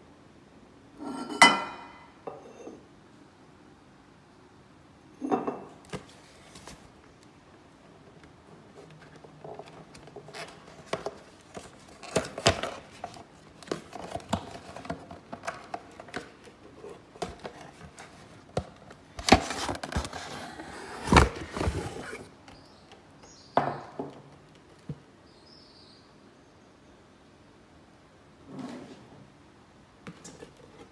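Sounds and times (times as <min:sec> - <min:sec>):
cardboard box scraping and rustling: 0:19.2 - 0:22.3.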